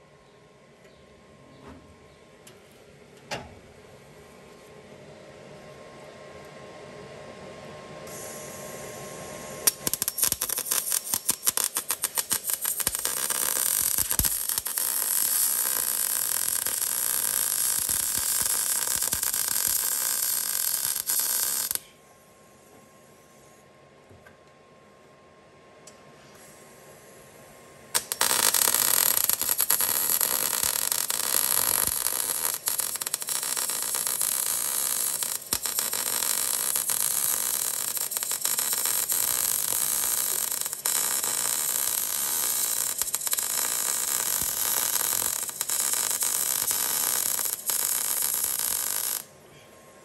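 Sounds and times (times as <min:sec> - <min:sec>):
welder sizzling: 0:08.1 - 0:21.9, 0:28.0 - 0:49.3.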